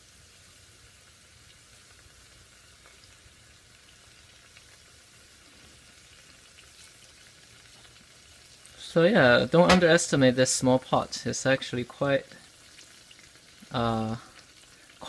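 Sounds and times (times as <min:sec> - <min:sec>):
oil sizzling with crackles: 0:00.0 - 0:15.0.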